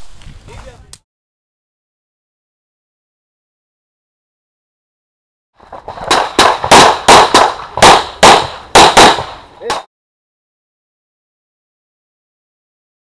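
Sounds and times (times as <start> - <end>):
pistol shots: 5.7 - 9.8.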